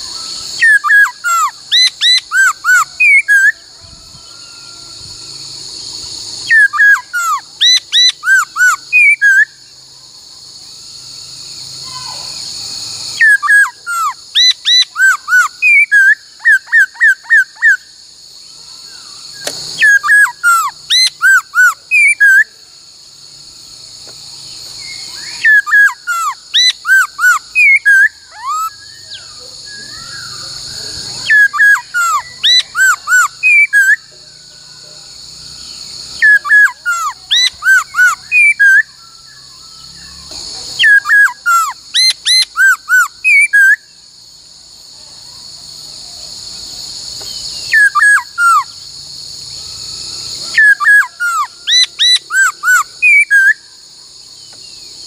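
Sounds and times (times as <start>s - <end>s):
bird whistling song: 0.0s - 9.8s, 11.8s - 18.0s, 18.8s - 22.6s, 24.0s - 34.1s, 35.5s - 44.0s, 47.2s - 48.8s, 49.6s - 53.8s
steady high hiss: 0.0s - 55.0s.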